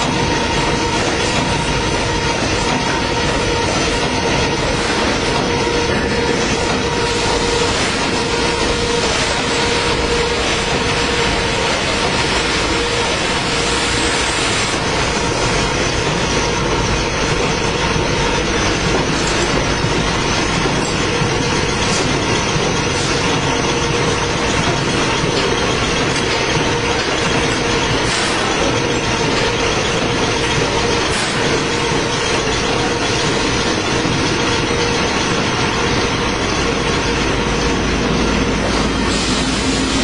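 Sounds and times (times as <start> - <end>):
constant machine hum: 0.0 - 40.0
machine clattering: 14.7 - 40.0.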